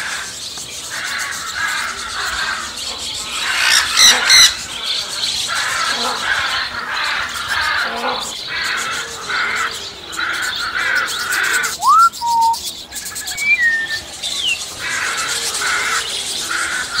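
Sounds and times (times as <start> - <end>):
parrots screeching: 0.9 - 17.0
parrot whistles: 11.8 - 12.6, 13.3 - 14.0.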